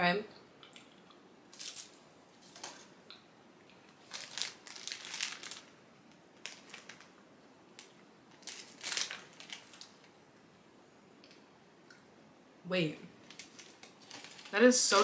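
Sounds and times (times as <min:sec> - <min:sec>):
plastic wrapper crinkling: 0:01.5 - 0:02.8, 0:03.9 - 0:07.2, 0:07.8 - 0:10.2, 0:13.2 - 0:15.0.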